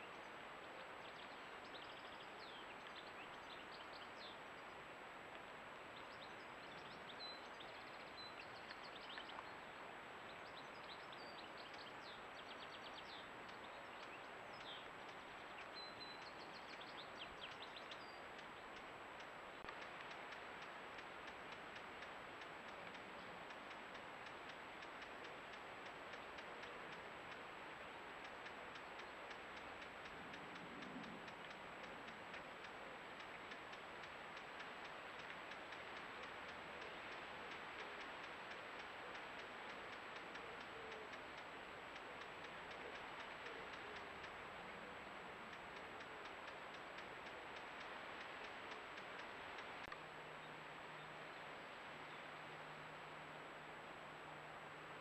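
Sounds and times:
faint steady hiss: 0:00.0 - 0:55.0
soft electronic ticks: 0:06.7 - 0:09.5, 0:11.6 - 0:12.2, 0:12.8 - 0:27.5, 0:28.1 - 0:44.4, 0:45.5 - 0:50.0.

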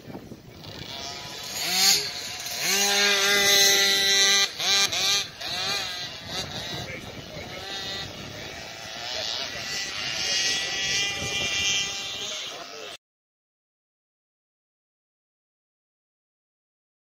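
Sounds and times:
two-stroke motorbike revving: 0:00.0 - 0:13.0.

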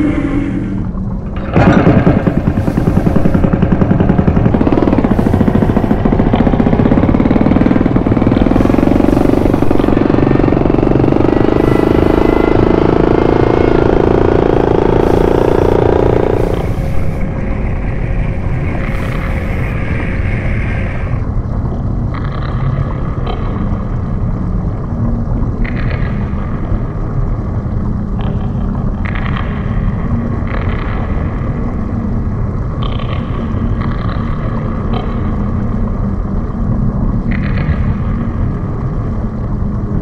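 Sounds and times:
hissing surges: 0:00.0 - 0:21.3
deep underwater rumble: 0:00.0 - 0:40.0.

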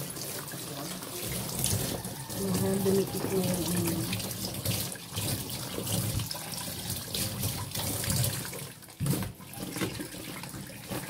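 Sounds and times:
hands washing plastic bag: 0:00.0 - 0:11.0
tap water running into sink: 0:00.0 - 0:11.0.

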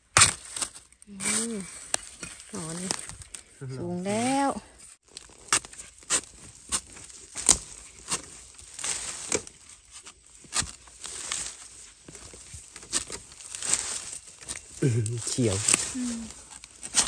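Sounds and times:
dry leaf litter crackling: 0:00.4 - 0:04.4, 0:05.0 - 0:17.0.

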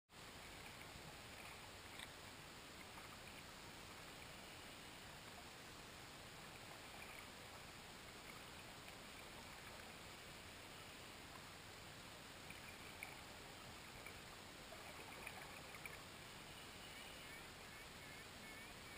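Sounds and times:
faint clicks: 0:00.5 - 0:02.2, 0:12.4 - 0:16.0.

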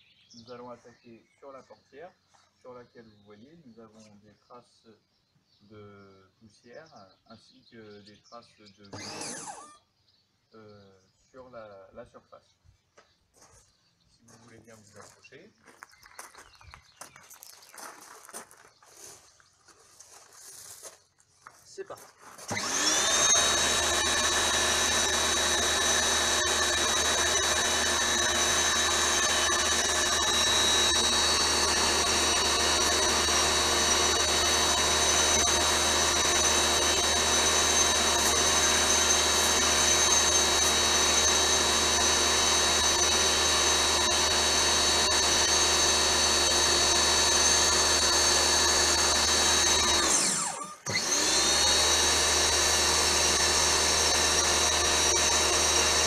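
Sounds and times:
pressure washer whining: 0:08.9 - 0:09.8, 0:22.5 - 0:56.0.

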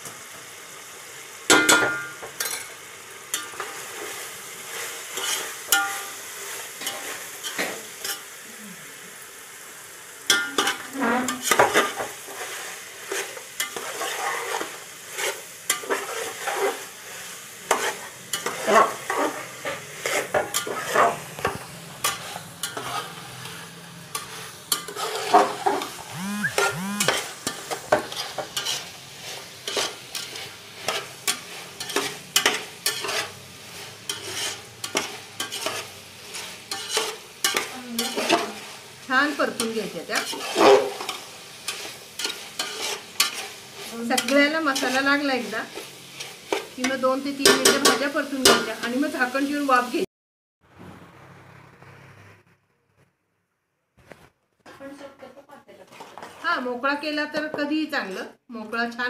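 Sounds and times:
vegetables sizzling in oil: 0:00.0 - 0:50.1, 0:54.7 - 0:59.0
spatula scraping metal pot: 0:04.7 - 0:06.0, 0:10.6 - 0:16.9, 0:17.7 - 0:23.5, 0:24.1 - 0:38.6, 0:39.5 - 0:48.6, 0:55.8 - 0:56.6.

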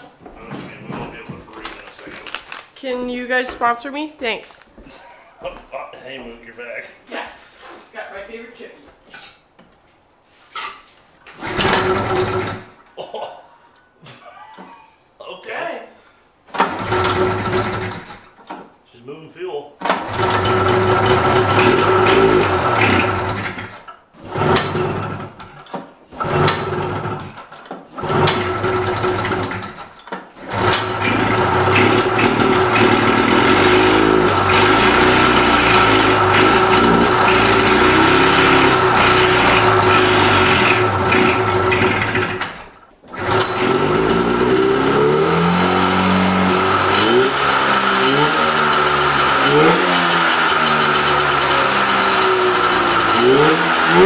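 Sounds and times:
snowmobile engine starting and revving: 0:11.3 - 0:12.8, 0:16.6 - 0:18.4, 0:19.9 - 0:54.0.

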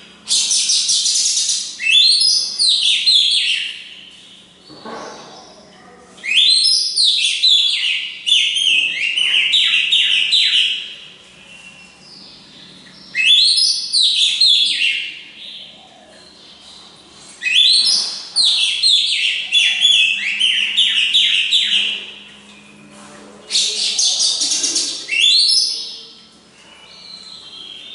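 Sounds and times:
bird singing whistled notes: 0:06.3 - 0:10.9, 0:13.0 - 0:15.1, 0:17.4 - 0:22.0, 0:24.9 - 0:26.1.

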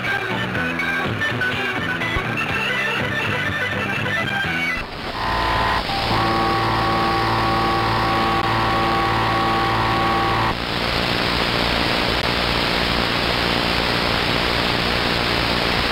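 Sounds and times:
pulsing interference tones: 0:04.8 - 0:15.9
radio static hiss: 0:04.8 - 0:15.9.

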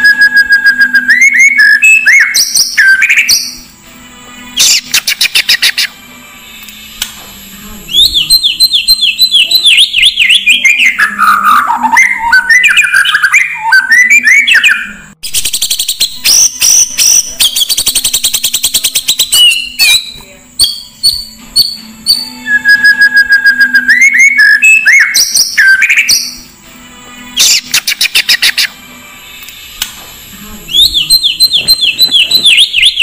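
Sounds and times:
steady low hum: 0:05.9 - 0:09.4, 0:28.7 - 0:32.7
bird singing and chattering: 0:07.9 - 0:22.3, 0:30.7 - 0:33.0.

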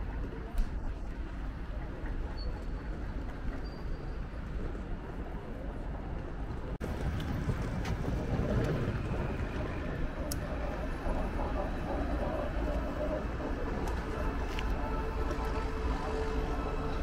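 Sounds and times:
wind noise on microphone: 0:00.0 - 0:17.0
low rumble: 0:05.8 - 0:17.0
faint clicks: 0:09.5 - 0:15.7.

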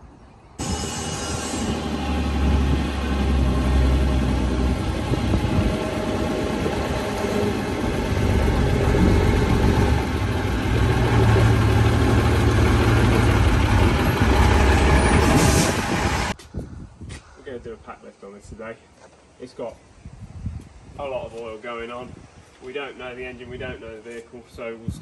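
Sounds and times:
diesel lorry engine: 0:00.6 - 0:16.4.

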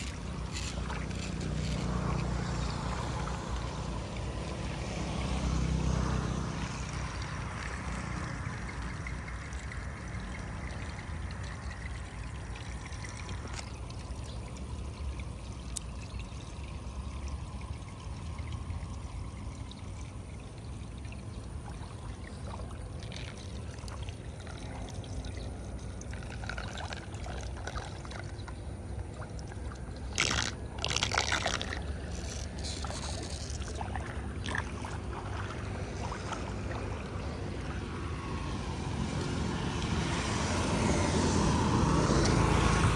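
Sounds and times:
floodwater flowing and trickling: 0:00.0 - 0:42.9
loud water splashes: 0:29.1 - 0:42.9.

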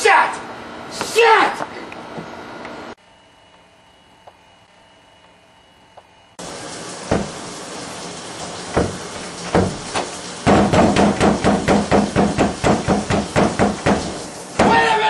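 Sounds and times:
hand banging on wooden door: 0:08.7 - 0:14.8.

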